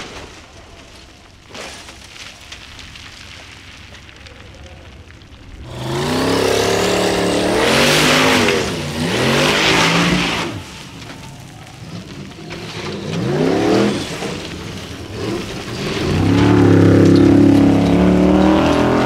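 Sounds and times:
spinning tyres spraying dirt: 0.0s - 19.0s
buggy engine revving hard: 5.6s - 10.7s, 12.0s - 19.0s.

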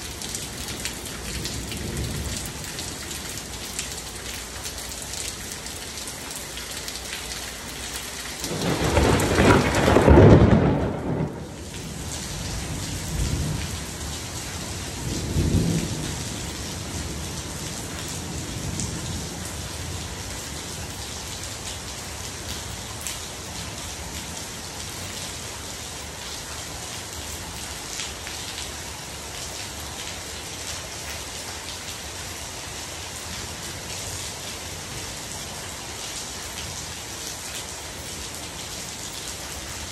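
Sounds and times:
heavy rain falling: 0.0s - 39.9s
rolling thunder: 8.5s - 19.6s.

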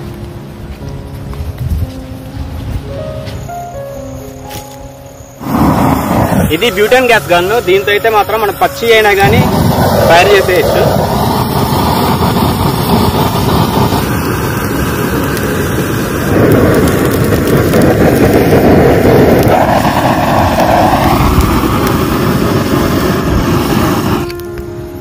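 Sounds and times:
dry brush crackling: 4.3s - 5.7s
gas torch flame hissing: 4.5s - 24.6s.

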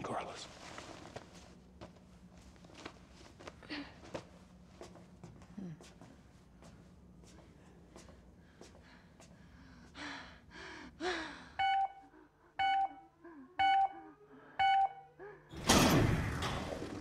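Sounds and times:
person gasping breaths: 7.9s - 14.6s
countdown timer beeping: 12.6s - 13.0s, 13.6s - 15.2s.

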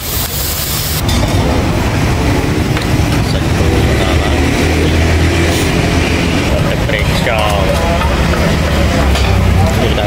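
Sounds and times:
frying hiss: 0.0s - 1.2s.

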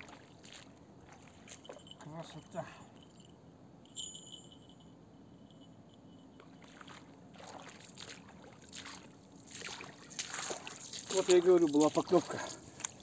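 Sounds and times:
river water trickling: 0.0s - 13.0s
thin high tone: 1.5s - 6.8s
light clicks and rustles: 11.1s - 13.0s.

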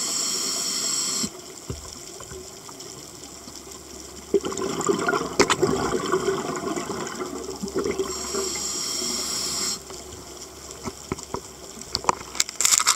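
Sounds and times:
regulator air hiss: 0.0s - 1.5s, 8.1s - 10.1s
bubbles gurgling underwater: 4.0s - 8.6s.

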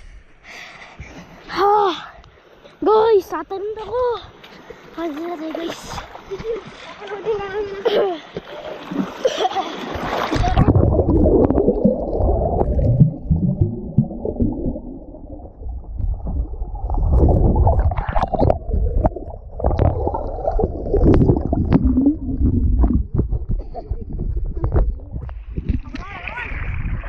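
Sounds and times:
water bubbling: 8.5s - 27.0s
underwater rumble and gurgling: 10.3s - 27.0s.

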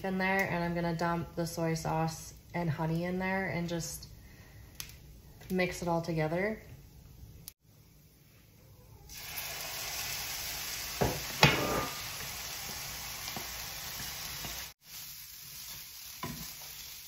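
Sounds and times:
meat sizzling in a frying pan: 9.1s - 17.0s.

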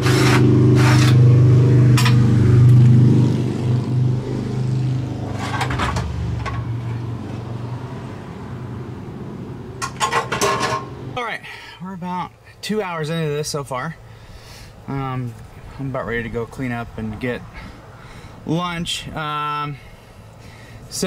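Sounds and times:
vehicle engine humming: 0.0s - 11.3s.

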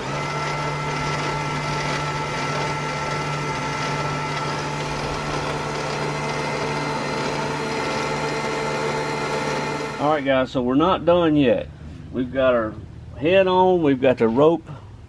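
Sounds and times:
electric winch motor whine: 0.0s - 10.3s.

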